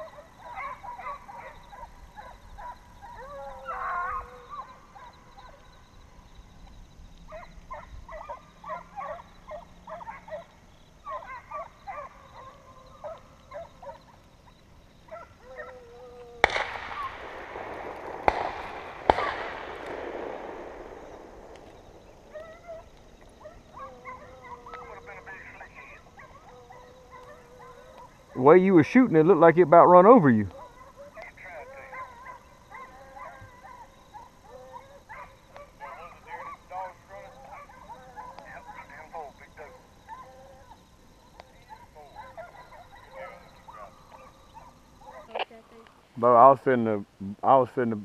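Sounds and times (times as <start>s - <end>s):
hounds baying: 0.0s - 45.6s
shotgun shots echoing: 16.4s - 23.4s.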